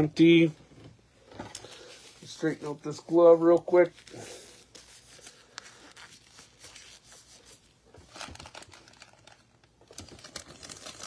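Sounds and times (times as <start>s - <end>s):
foil packs crinkling: 1.5s - 11.0s.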